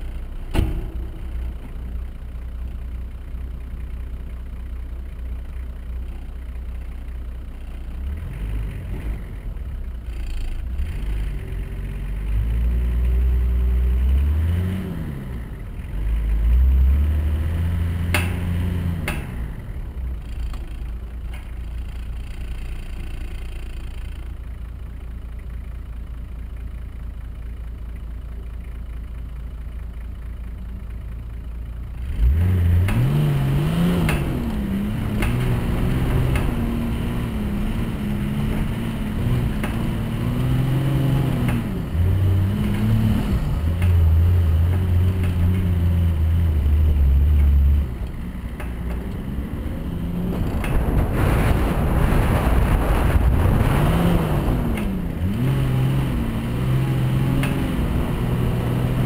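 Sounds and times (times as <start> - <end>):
diesel engine revving: 7.6 - 24.2, 31.6 - 59.0.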